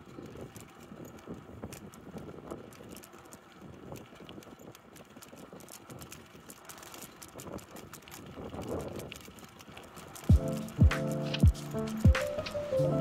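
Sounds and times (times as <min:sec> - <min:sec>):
bicycle tyres crunching on gravel: 0:00.0 - 0:13.0
bike clicks and rattles: 0:00.0 - 0:13.0.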